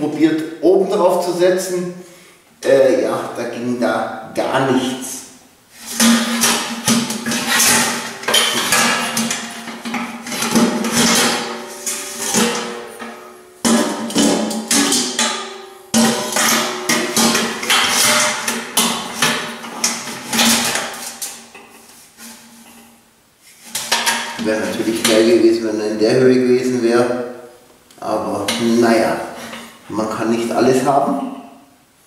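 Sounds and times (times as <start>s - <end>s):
metal bucket clanking on steel legs: 5.8s - 23.0s, 23.6s - 25.4s.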